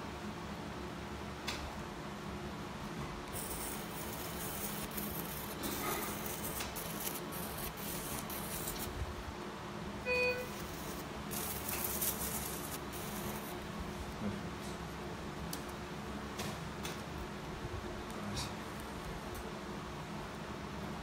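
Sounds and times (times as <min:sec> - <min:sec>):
equipment hum: 0:00.0 - 0:21.0
high hissing: 0:03.4 - 0:08.9, 0:10.5 - 0:13.6
short electronic beep: 0:10.0 - 0:10.6.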